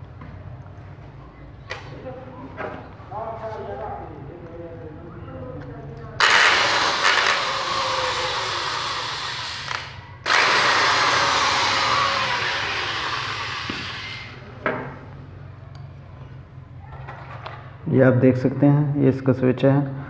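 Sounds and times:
power drill unscrewing screws: 6.2s - 14.3s.

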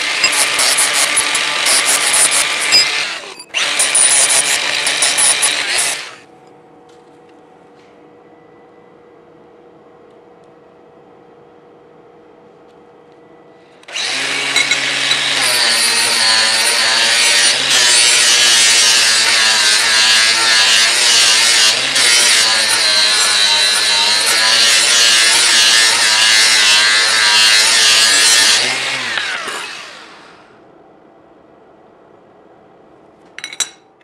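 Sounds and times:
angle grinder grinding steel: 0.0s - 6.2s, 13.9s - 30.0s
grinder spinning down: 0.0s - 6.2s.

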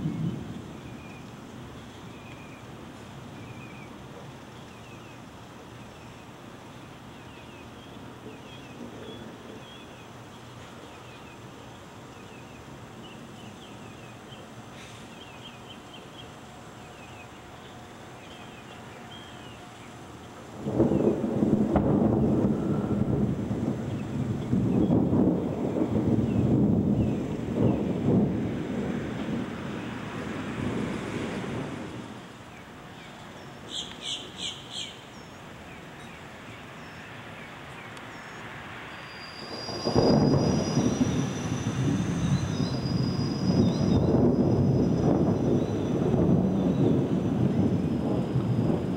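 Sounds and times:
outdoor air hiss: 0.0s - 48.9s
small birds chirping: 0.1s - 21.2s, 32.4s - 41.3s
faint bird chirps: 36.0s - 41.4s.

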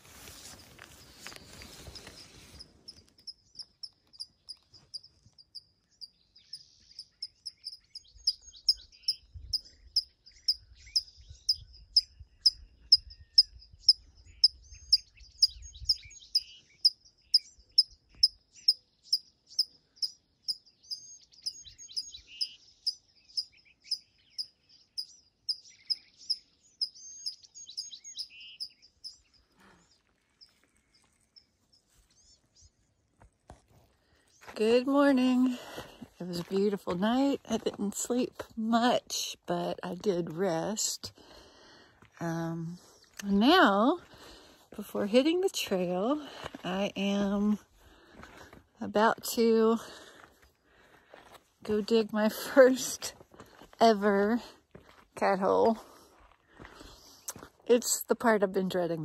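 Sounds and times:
birds chirping: 0.4s - 33.2s.

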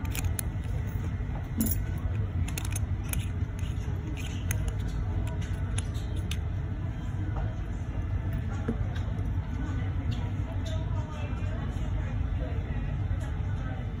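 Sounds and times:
steady low hum: 0.0s - 14.0s
watch case metallic clicks: 2.4s - 6.4s.

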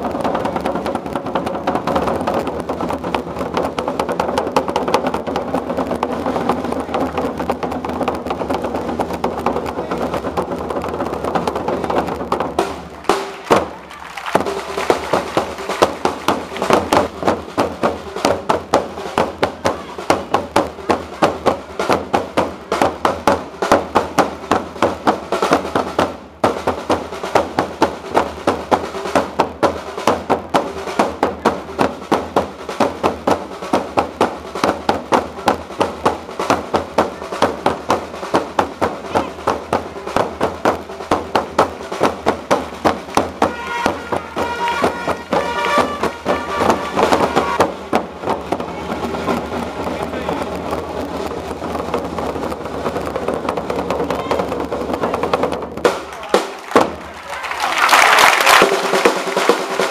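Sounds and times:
drums beating march rhythm: 0.0s - 59.9s.

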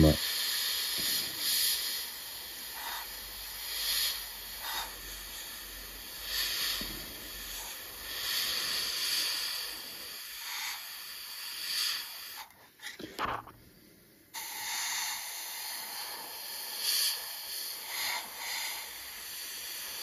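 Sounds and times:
airbrush hissing in spurts: 0.0s - 13.0s, 14.4s - 20.0s.

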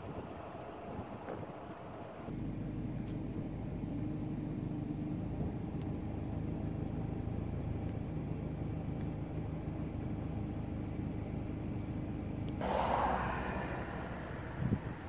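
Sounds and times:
car engine humming: 0.0s - 15.0s
rush of hiss: 12.6s - 15.0s.

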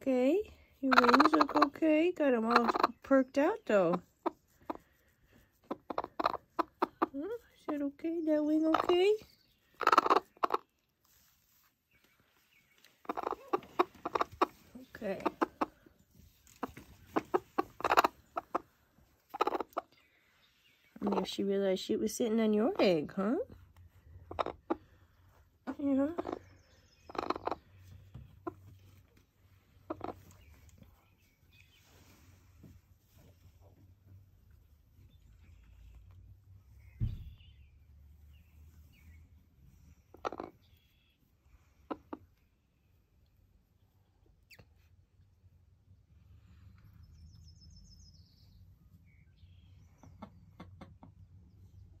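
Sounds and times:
hen giving agitated calls: 0.8s - 5.0s, 5.6s - 7.2s, 8.5s - 10.7s, 13.0s - 15.8s, 16.6s - 19.9s, 21.0s - 21.5s, 24.2s - 25.0s, 25.6s - 27.8s, 29.8s - 30.4s.

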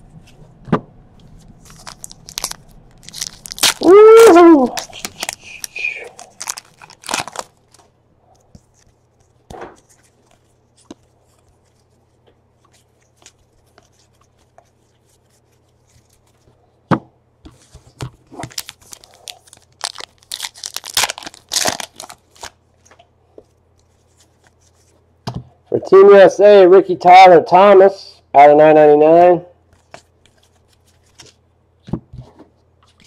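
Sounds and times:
cards rustling: 1.2s - 16.6s, 17.5s - 25.0s, 29.7s - 31.4s
foil wrapper crackling: 1.6s - 7.9s, 18.4s - 22.6s.

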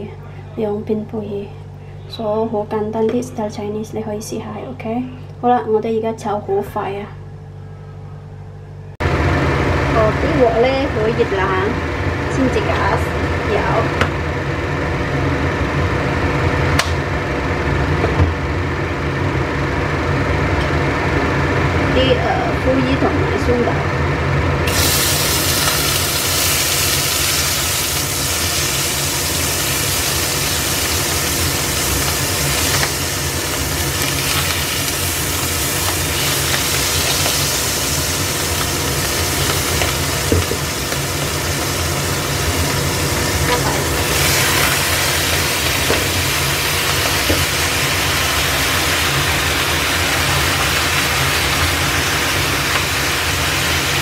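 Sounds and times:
low machine hum: 0.0s - 54.0s
food sizzling in hot oil: 24.6s - 54.0s.

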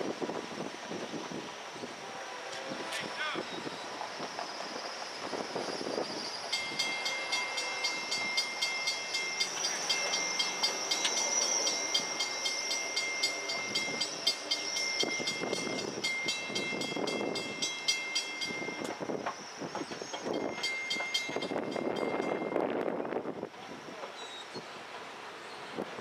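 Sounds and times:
railroad crossing bell ringing: 5.6s - 23.3s.

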